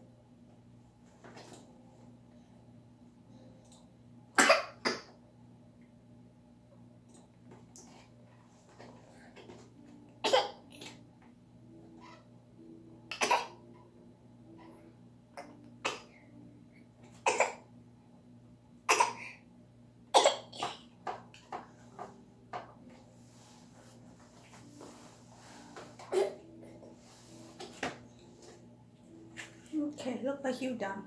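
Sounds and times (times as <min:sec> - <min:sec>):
toddler coughing: 0:04.4 - 0:05.1, 0:10.2 - 0:10.6, 0:13.1 - 0:13.6, 0:15.4 - 0:16.1, 0:17.2 - 0:17.7, 0:18.9 - 0:19.4, 0:20.1 - 0:20.9, 0:26.0 - 0:26.5.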